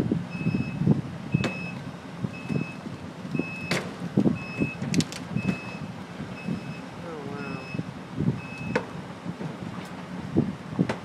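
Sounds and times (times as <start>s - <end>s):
low engine rumble: 0.0s - 11.0s
back-up alarm beeping: 0.3s - 3.8s, 4.4s - 4.8s, 5.4s - 8.8s.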